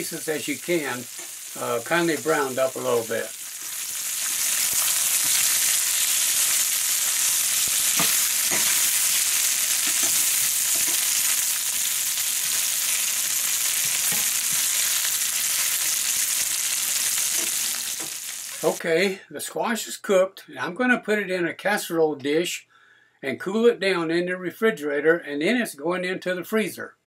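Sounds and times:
squash slices sizzling in oil: 0.0s - 18.8s
metal spatula scraping a skillet: 3.6s - 11.3s.

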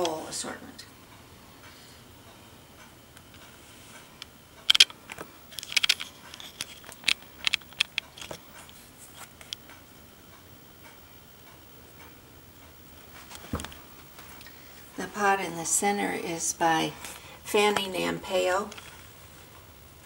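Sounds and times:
irregular light clicks and ticks: 0.8s - 14.7s, 18.6s - 19.7s.

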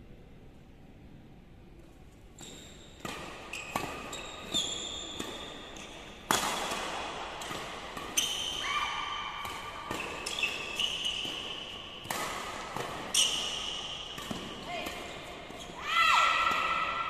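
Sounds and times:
shoes squeaking on court: 2.3s - 8.7s, 9.5s - 12.2s, 12.8s - 15.8s
rackets striking shuttlecock: 2.4s - 15.6s, 16.3s - 17.0s.

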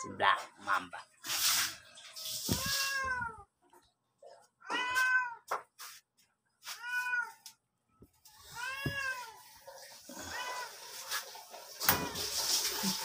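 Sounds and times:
cat meowing: 2.4s - 3.5s, 4.6s - 5.5s, 6.7s - 7.5s, 8.3s - 9.4s, 10.2s - 10.8s.

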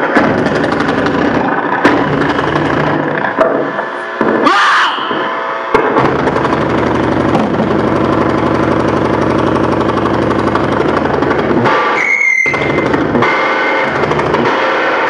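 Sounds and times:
harsh electronic noise music: 0.0s - 15.0s
bright squealing burst: 11.7s - 14.0s.

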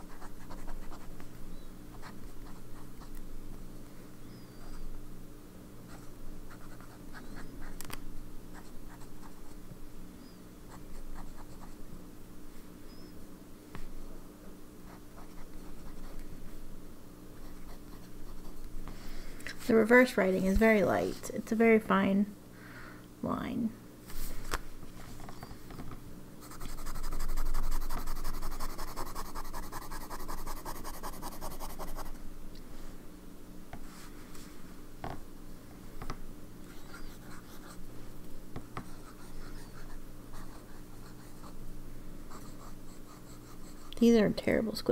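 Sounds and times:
pen nib scratching on paper: 0.0s - 1.1s, 26.4s - 32.1s, 42.3s - 44.1s.

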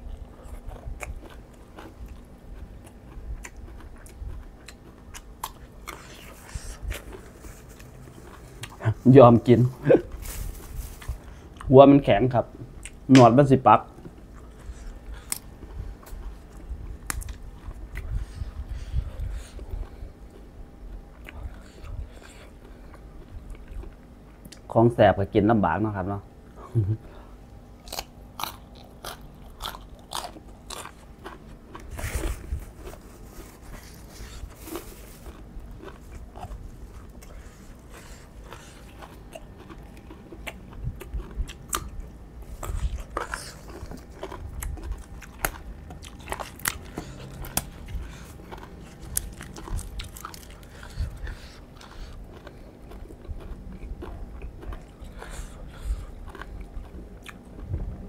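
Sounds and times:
person chewing crunchy food: 0.0s - 24.7s, 26.7s - 57.7s.

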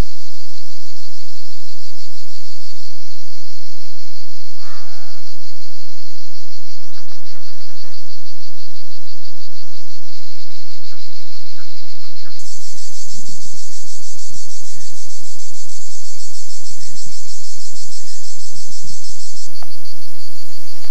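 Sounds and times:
pulsing shrill of insects: 4.6s - 15.0s.

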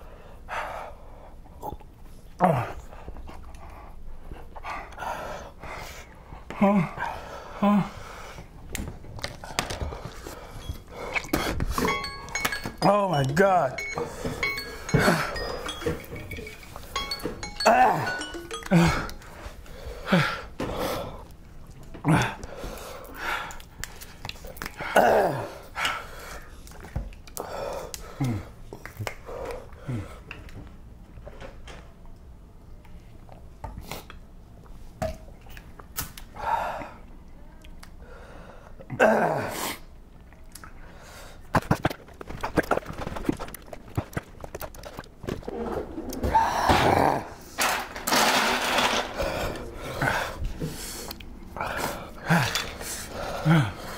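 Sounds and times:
heavy breathing: 2.5s - 8.5s, 9.3s - 12.6s, 13.8s - 21.3s, 49.0s - 53.9s
man crying out in pain: 17.6s - 19.2s
plastic bottles clicking and knocking: 41.6s - 46.2s
men groaning: 46.1s - 47.4s, 51.6s - 53.9s.

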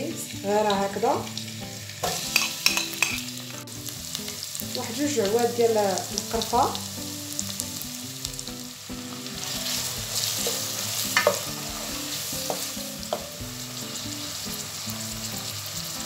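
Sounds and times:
onion sizzling in a pan: 0.0s - 16.0s
spoon scraping a pan: 2.0s - 3.3s.

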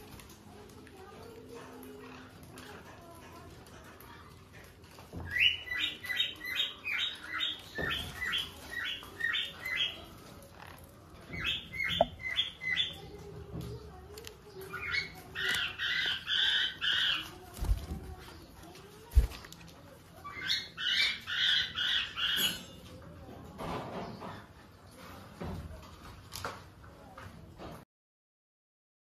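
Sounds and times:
parrots squawking: 14.7s - 17.3s.

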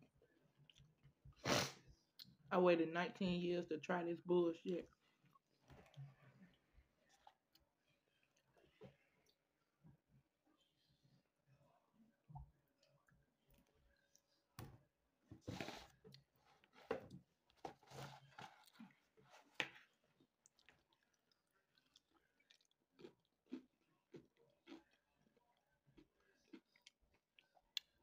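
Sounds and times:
chewing fried chicken: 4.8s - 9.6s, 15.9s - 28.0s.

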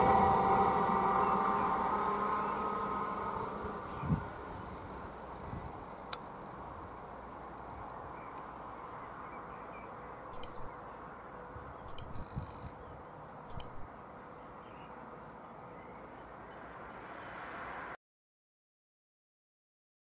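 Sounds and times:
outdoor background hiss: 0.0s - 18.0s
mouse-click sound effects: 10.4s - 10.7s, 11.9s - 12.3s, 13.5s - 13.9s.

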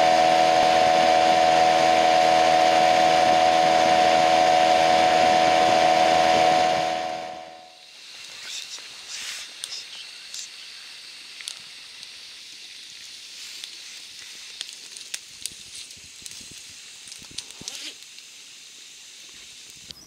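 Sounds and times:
pasta sizzling in a pan: 7.7s - 20.0s
oil pops and crackles: 11.3s - 18.4s.

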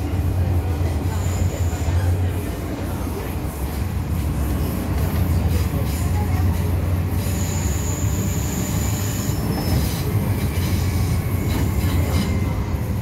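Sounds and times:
train wheels rumbling: 0.0s - 13.0s
high wheel squeal: 7.1s - 12.9s.

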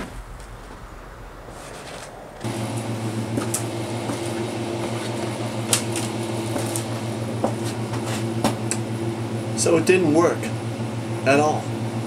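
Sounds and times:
low machine hum: 2.1s - 12.0s.

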